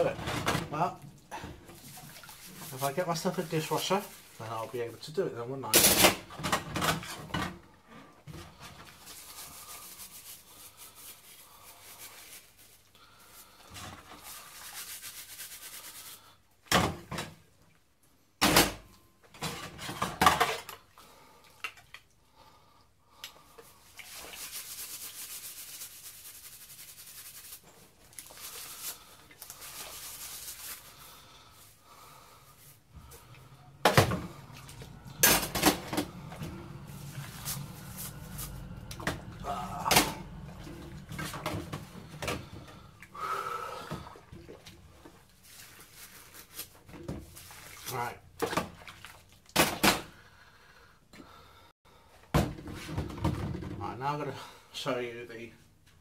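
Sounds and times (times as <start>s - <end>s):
dishes being scrubbed: 1.3s - 4.4s, 13.5s - 16.2s, 23.6s - 43.0s.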